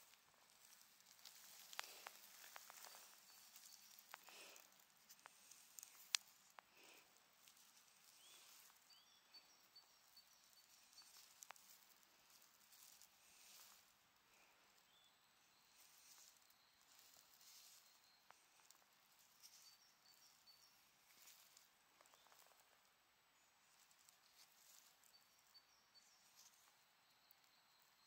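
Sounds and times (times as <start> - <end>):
soft crackles: 0.0 - 28.0.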